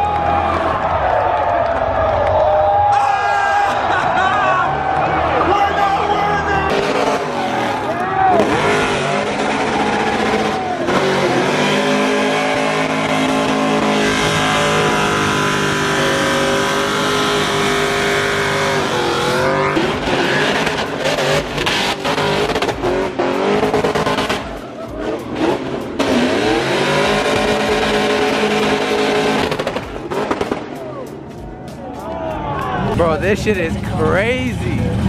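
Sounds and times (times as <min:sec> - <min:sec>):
car engine revving: 0:03.9 - 0:31.4.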